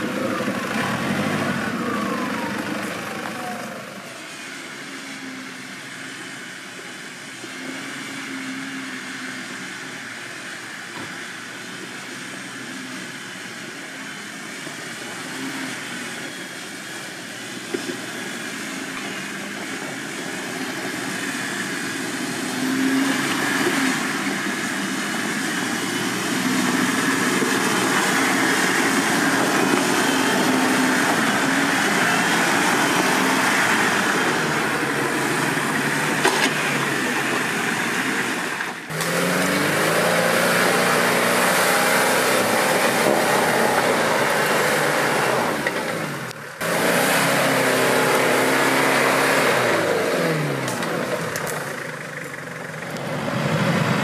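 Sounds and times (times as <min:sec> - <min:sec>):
engine revving: 0:00.0 - 0:04.4, 0:17.8 - 0:54.0
off-road engine under load: 0:00.0 - 0:54.0.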